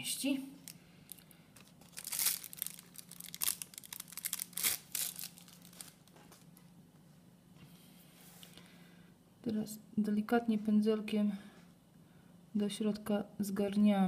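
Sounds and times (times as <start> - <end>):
crinkling and rustling: 0.6 - 6.8.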